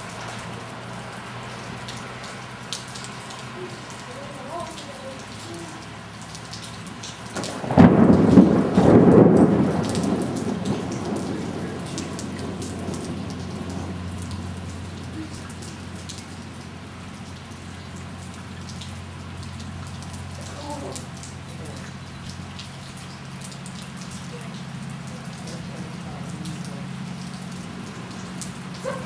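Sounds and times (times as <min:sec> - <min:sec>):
steady rain: 0:00.0 - 0:29.0
thunder rumbling: 0:07.4 - 0:16.7.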